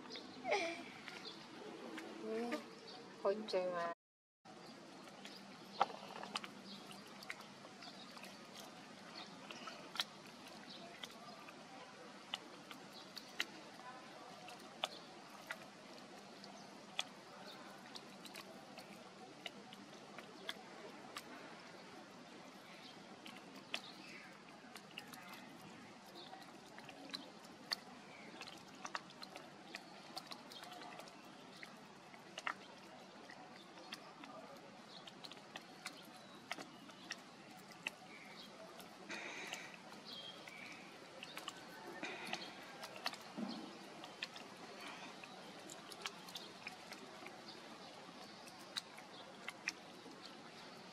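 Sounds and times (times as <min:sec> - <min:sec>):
faint outdoor ambience: 0:00.0 - 0:50.9
small clicks and ticks: 0:22.6 - 0:50.9.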